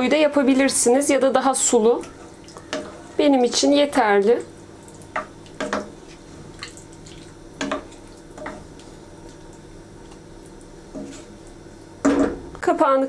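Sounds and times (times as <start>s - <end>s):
steady low hum: 0.0s - 13.0s
wooden spoon stirring stew: 1.7s - 3.9s, 4.9s - 11.5s.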